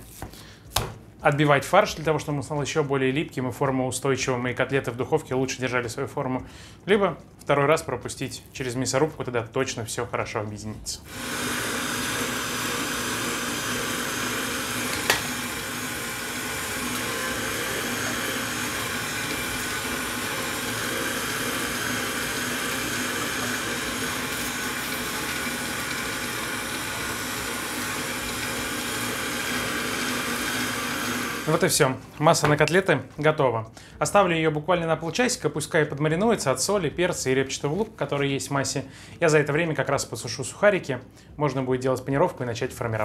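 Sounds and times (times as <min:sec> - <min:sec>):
electric meat grinder running: 0:11.1 - 0:31.6.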